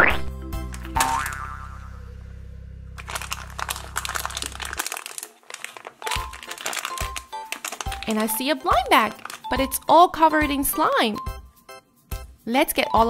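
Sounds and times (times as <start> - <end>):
background music: 0.0 - 5.0, 6.0 - 13.0
plastic packet crinkling: 3.0 - 10.1.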